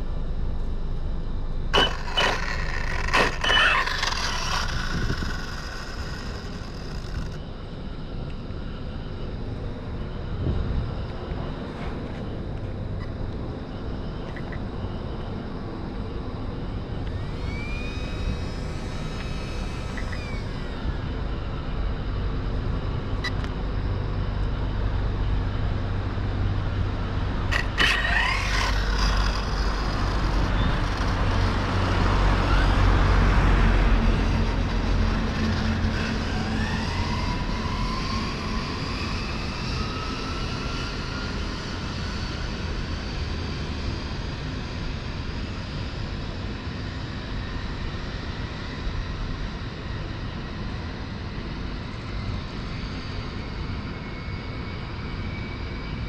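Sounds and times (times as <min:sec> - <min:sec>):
road traffic: 0:00.0 - 0:45.1
wind rumbling on microphone: 0:01.7 - 0:13.8.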